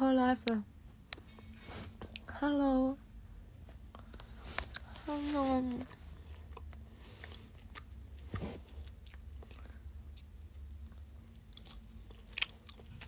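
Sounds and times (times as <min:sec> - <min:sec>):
steady low hum: 0:00.0 - 0:13.0
person chewing dried fruit: 0:03.9 - 0:05.0, 0:05.8 - 0:13.0.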